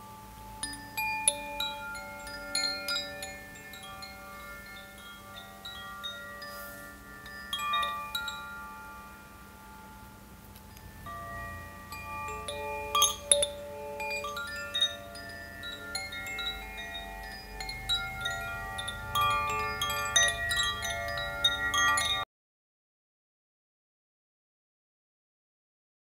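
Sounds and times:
wind chimes ringing: 0:00.0 - 0:22.3.

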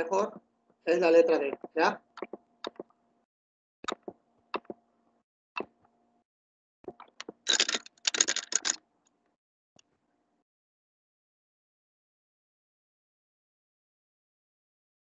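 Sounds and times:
computer mouse clicks: 0:03.8 - 0:04.8, 0:06.9 - 0:08.8.

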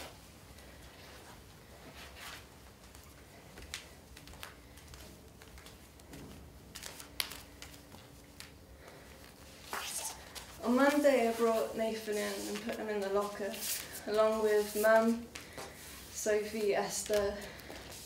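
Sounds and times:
cloth rustling: 0:00.0 - 0:18.0
bare feet tapping on floor: 0:02.8 - 0:09.0.

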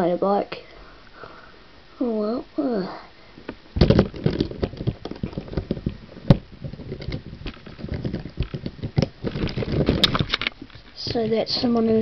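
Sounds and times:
plastic toy bricks clicking: 0:03.8 - 0:11.2.

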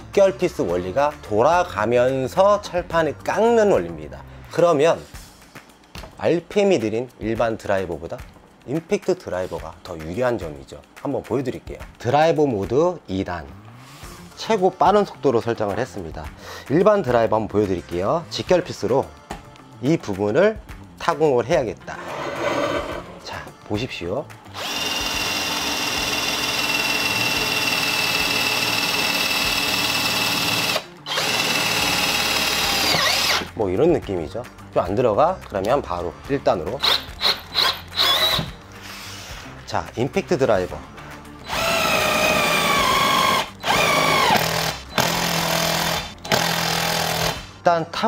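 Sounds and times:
cordless drill motor whine: 0:24.6 - 0:33.4, 0:36.8 - 0:38.5, 0:41.5 - 0:47.4.

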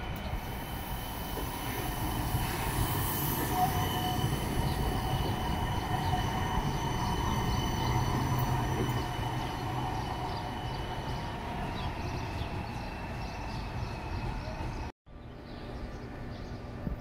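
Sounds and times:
tram rolling on rails: 0:00.0 - 0:14.9
high-pitched whining tones: 0:00.1 - 0:13.2.

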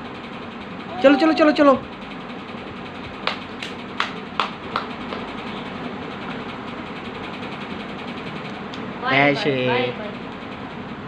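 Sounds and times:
steady background noise: 0:00.0 - 0:11.0
baby clapping hands: 0:03.2 - 0:05.3.

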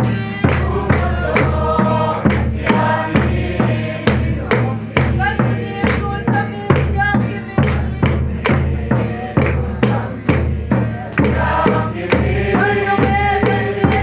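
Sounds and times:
group singing a hymn: 0:00.0 - 0:14.0
steady drum beat: 0:00.0 - 0:14.0.

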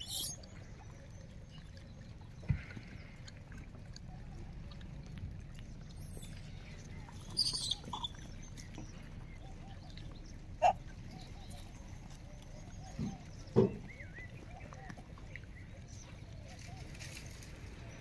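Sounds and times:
short high squeak: 0:00.0 - 0:00.4
faint bird chirping: 0:00.0 - 0:01.8, 0:05.7 - 0:18.0.

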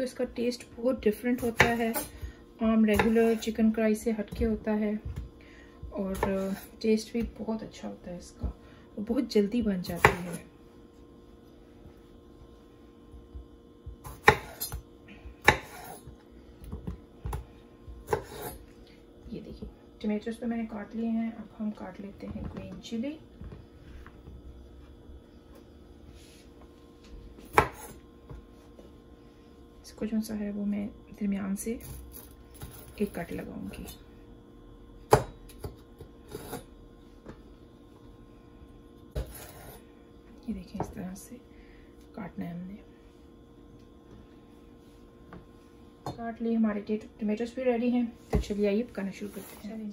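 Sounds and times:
knife scraping on board: 0:15.6 - 0:16.1, 0:18.1 - 0:18.6, 0:36.3 - 0:36.7, 0:39.2 - 0:39.8.

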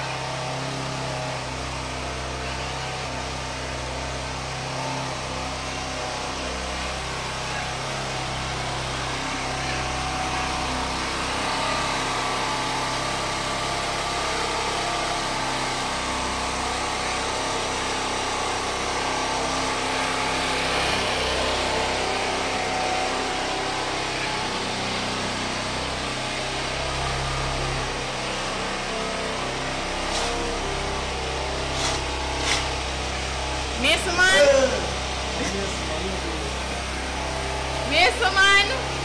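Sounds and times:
small engine running: 0:00.0 - 0:39.0.

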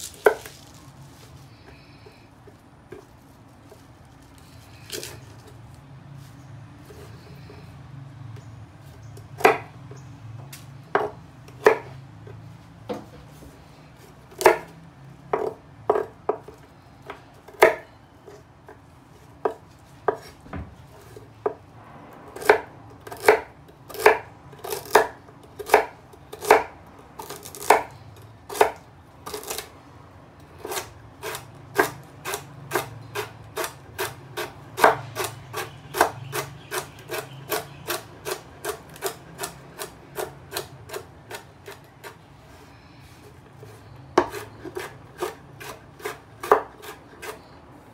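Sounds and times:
knife chopping on wooden board: 0:09.4 - 0:09.7, 0:10.9 - 0:12.0, 0:14.3 - 0:14.7, 0:15.3 - 0:17.9, 0:19.4 - 0:21.6, 0:22.4 - 0:27.9, 0:28.5 - 0:29.7, 0:30.6 - 0:42.2, 0:43.6 - 0:47.4.

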